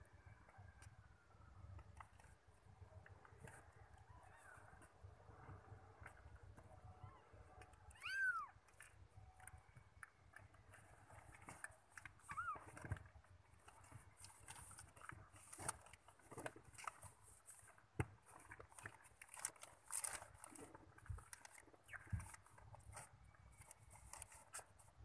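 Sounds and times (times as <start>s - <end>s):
faint rustling in a box: 0.1s - 25.0s
kitten squeak: 7.9s - 8.6s, 12.2s - 12.8s.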